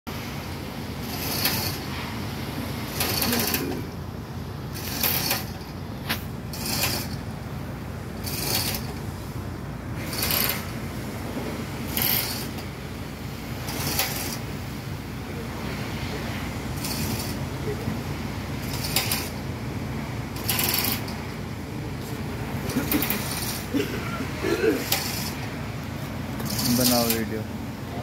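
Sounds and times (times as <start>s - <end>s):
steady low rumble: 0.1s - 28.0s
hoist chain rattling and clicking: 1.0s - 1.9s, 2.9s - 3.9s, 4.7s - 5.8s, 6.5s - 7.2s, 8.2s - 9.0s, 10.0s - 10.7s, 11.9s - 12.6s, 13.7s - 14.4s, 16.8s - 17.4s, 18.6s - 19.4s, 20.4s - 21.3s, 22.7s - 23.7s, 24.8s - 25.4s, 26.4s - 27.4s.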